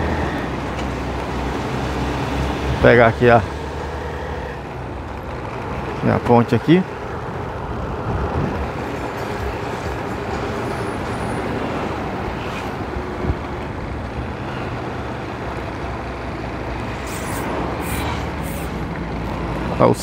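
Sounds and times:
motorcycle running: 0.0 - 10.8
wind and road noise: 0.0 - 20.0.

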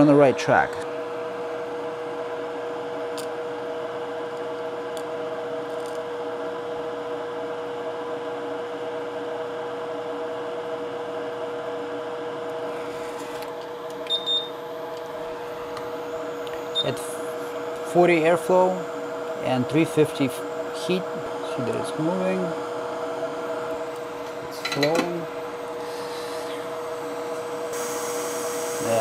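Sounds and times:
fan electric hum: 0.0 - 29.0.

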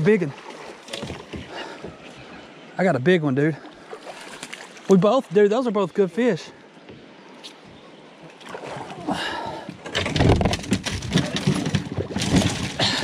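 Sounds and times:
knocks and clatter in metal boat: 0.8 - 2.1, 9.7 - 13.0.

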